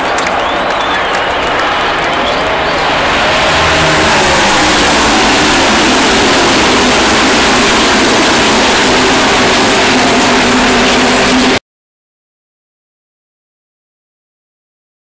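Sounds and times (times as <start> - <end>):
race car engines roaring past: 0.0 - 11.6.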